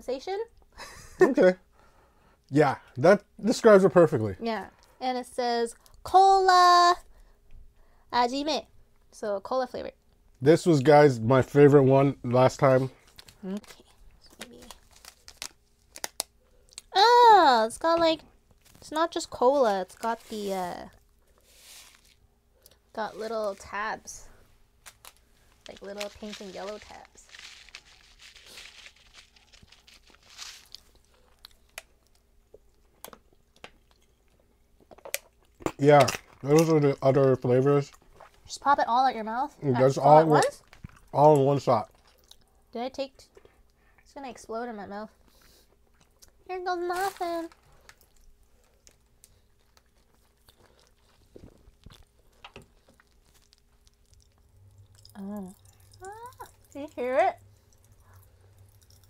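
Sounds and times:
plastic packet rustling: 12.8s - 16.3s, 18.6s - 22.2s, 24.8s - 31.8s, 46.7s - 54.4s
popping candy crackling: 13.0s - 21.2s, 21.9s - 38.8s, 39.8s - 42.4s, 46.0s - 59.0s
sharp clicks of a plastic packet: 13.1s - 16.3s
chewing: 27.4s - 36.7s, 41.9s - 42.6s, 47.6s - 59.0s.

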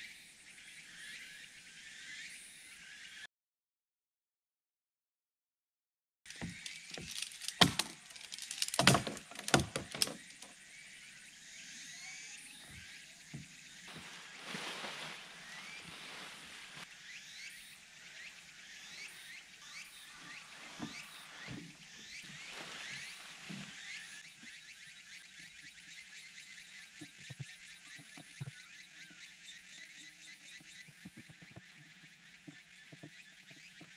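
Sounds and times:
sharp knocks and thumps: 6.3s - 10.5s.

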